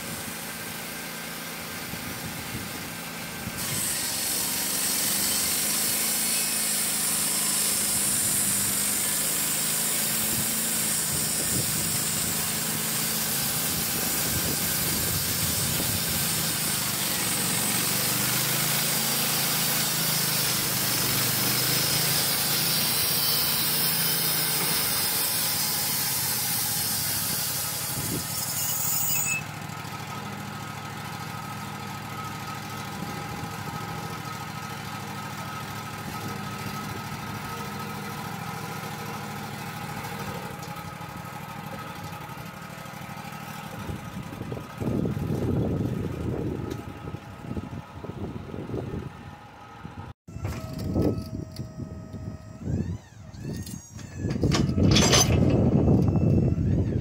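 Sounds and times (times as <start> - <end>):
sawmill engine running: 0.0 - 57.0
band blade hissing in wood: 3.6 - 29.4.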